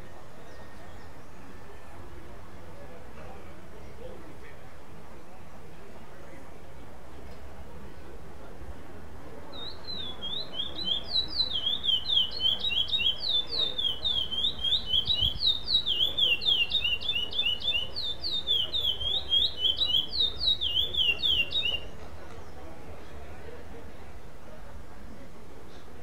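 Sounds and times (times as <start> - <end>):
finch singing whistled notes: 9.6 - 22.6.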